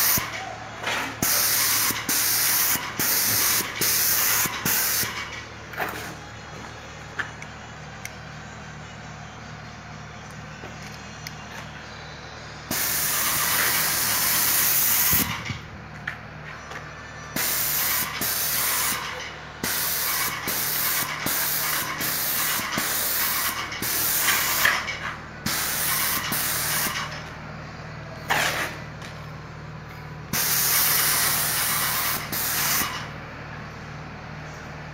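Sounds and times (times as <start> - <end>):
paint sprayer hissing in bursts: 0.0 - 0.4, 1.2 - 5.3, 12.6 - 15.5, 17.4 - 27.2, 30.3 - 33.2
steady low hum: 0.0 - 34.9.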